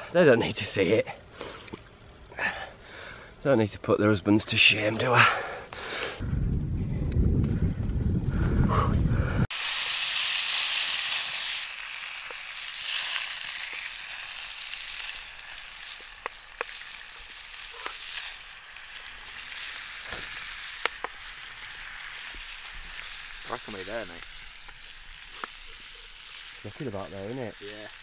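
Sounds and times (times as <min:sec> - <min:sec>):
bacon sizzling in a frying pan: 0:09.5 - 0:28.0.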